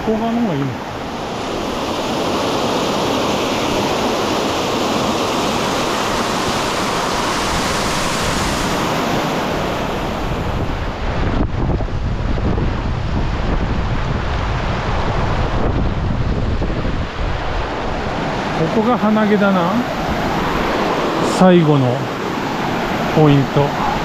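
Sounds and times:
stream water rushing over rocks: 18.1 - 24.0.

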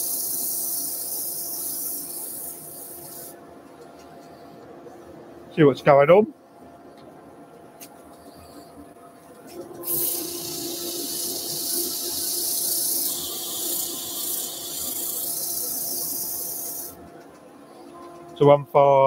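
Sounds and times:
sanding hiss on wood lathe: 0.0 - 3.4, 9.8 - 17.0.

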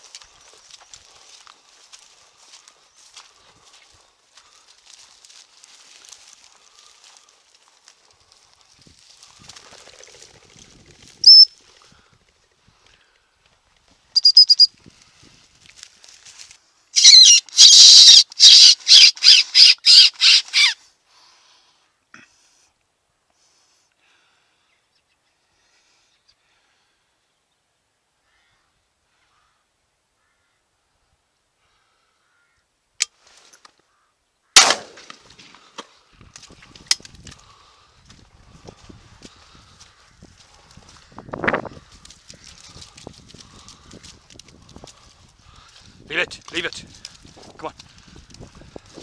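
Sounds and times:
mouth-blown fox call: 17.0 - 20.8
shotgun shot: 34.6 - 35.2.

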